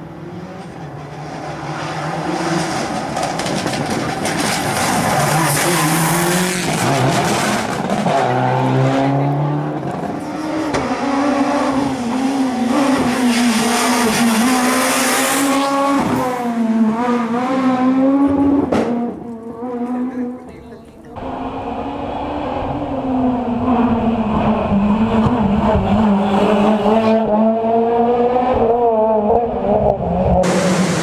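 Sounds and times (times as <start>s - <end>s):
rally car engines revving: 0.0s - 31.0s.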